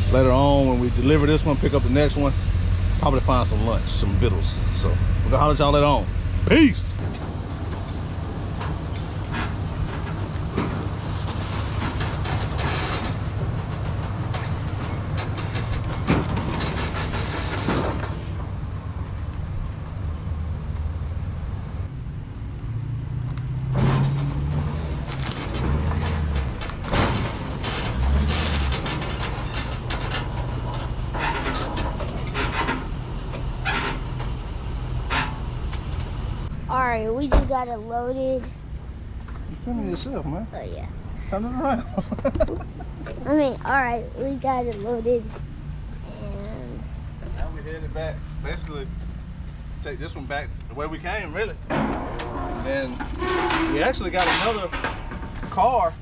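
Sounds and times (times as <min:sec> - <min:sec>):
rattles and clunks: 0:00.0 - 0:20.0, 0:23.6 - 0:36.5, 0:49.8 - 0:56.0
vehicle engine running: 0:00.0 - 0:23.4.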